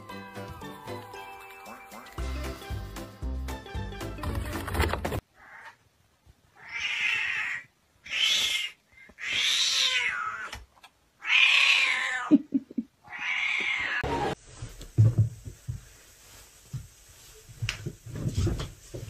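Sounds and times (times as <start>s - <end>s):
cat yowling: 6.6s - 10.6s, 11.2s - 12.3s, 13.1s - 14.3s.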